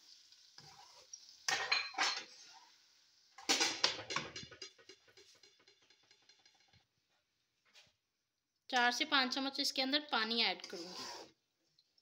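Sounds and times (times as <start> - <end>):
metal spoon scraping a wok: 0.6 - 1.1, 10.6 - 11.4.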